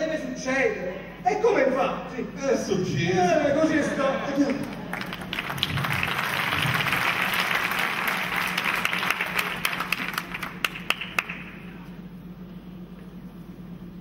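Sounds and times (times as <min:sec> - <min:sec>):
audience applauding: 0:04.6 - 0:11.6.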